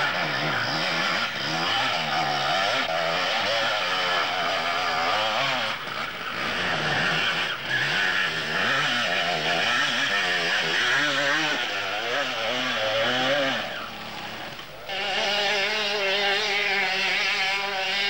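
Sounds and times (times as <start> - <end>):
two-stroke motorcycle engine revving: 0.0 - 18.0.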